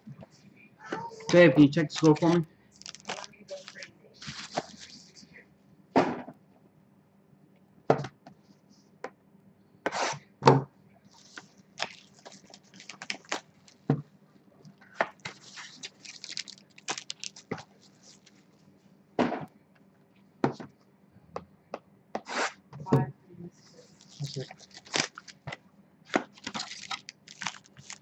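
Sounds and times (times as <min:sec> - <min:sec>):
foil crinkling: 0:01.6 - 0:05.1, 0:11.2 - 0:13.9, 0:15.1 - 0:18.6, 0:23.8 - 0:25.5, 0:26.2 - 0:28.0.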